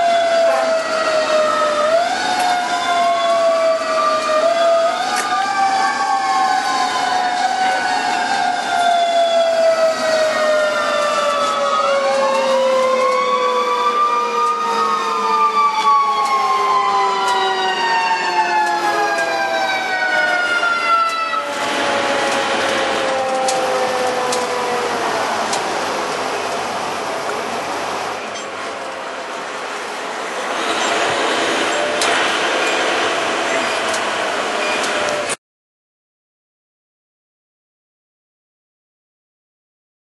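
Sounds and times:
second siren wail: 0.0 - 26.6
siren wailing: 0.0 - 27.1, 28.7 - 35.4
rushing noise: 16.4 - 35.4.

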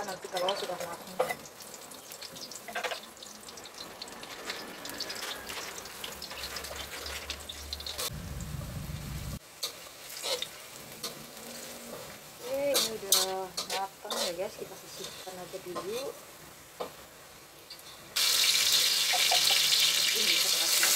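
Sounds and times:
shallots sizzling in hot oil: 0.0 - 20.9
spatula scraping wok: 4.1 - 8.2, 9.4 - 16.2
low rumble: 8.1 - 9.4.

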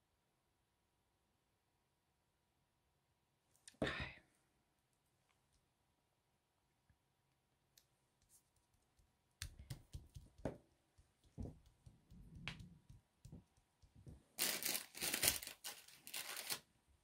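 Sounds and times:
taps and clicks on desk: 9.0 - 14.2
paper rustling and crinkling: 14.4 - 16.7.

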